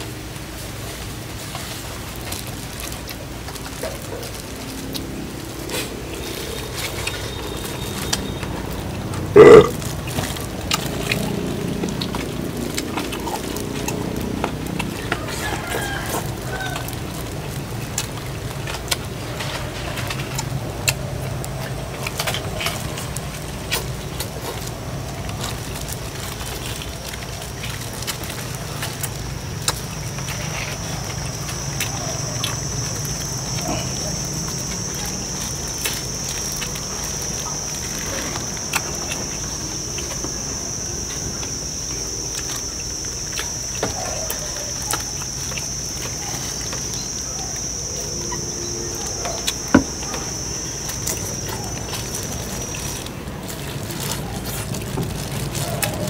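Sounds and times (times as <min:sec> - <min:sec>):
high insect buzz: 0:09.4 - 0:09.7.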